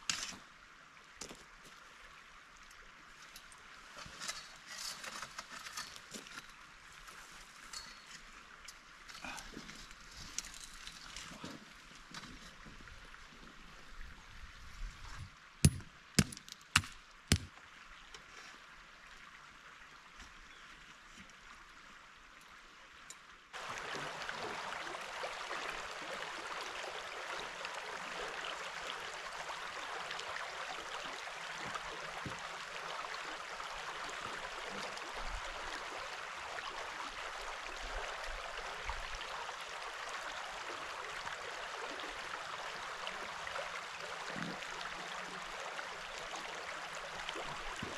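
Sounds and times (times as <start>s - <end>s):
creek rushing: 23.6s - 47.9s.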